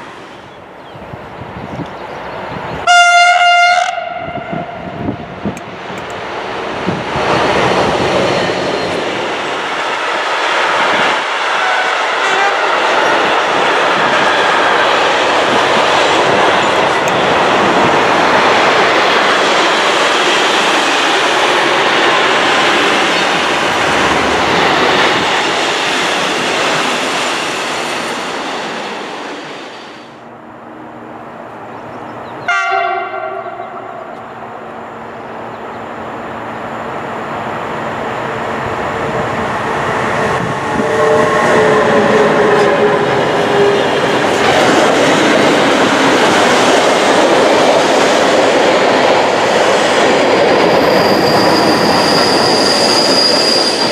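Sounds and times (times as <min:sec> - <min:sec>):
freight train rolling past: 0:00.0 - 0:53.9
train horn blast: 0:02.8 - 0:04.9, 0:11.6 - 0:12.8, 0:32.4 - 0:34.2, 0:40.7 - 0:43.8.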